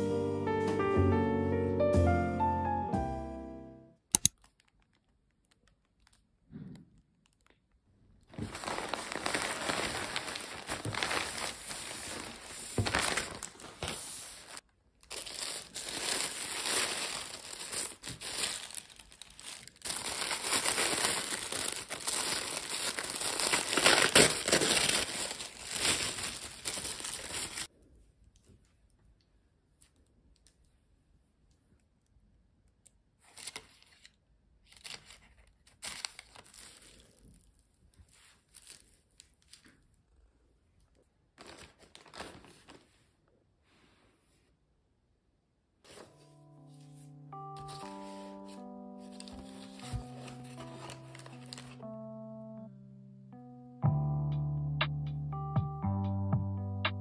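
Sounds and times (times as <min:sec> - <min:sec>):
plastic bag crinkling and tearing: 0:04.3 - 0:06.4, 0:08.3 - 0:27.7, 0:33.2 - 0:39.8, 0:41.4 - 0:42.9, 0:47.6 - 0:51.8.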